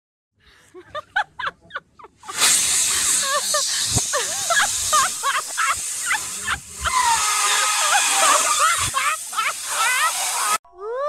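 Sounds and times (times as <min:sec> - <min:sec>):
balloon air hissing and squealing: 0:02.2 - 0:10.6
balloon squeaks: 0:02.3 - 0:10.6.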